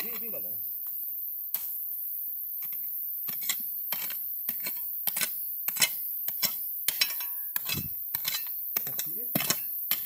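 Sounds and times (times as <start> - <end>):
steady high hiss: 0.0 - 10.0
pick striking stony soil: 2.6 - 10.0.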